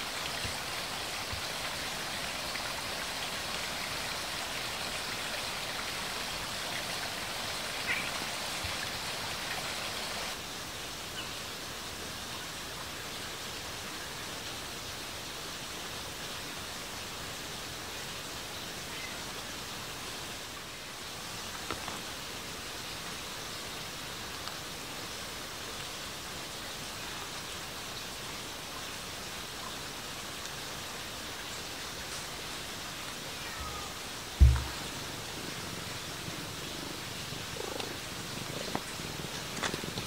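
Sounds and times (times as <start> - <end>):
water hissing: 33.5 - 39.2.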